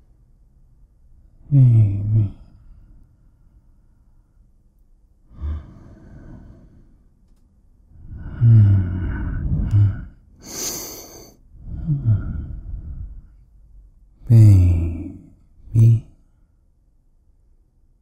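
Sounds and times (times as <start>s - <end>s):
man making wordless vocal sounds: 1.4s - 2.5s, 14.2s - 16.2s
short breathy hiss: 10.4s - 11.4s.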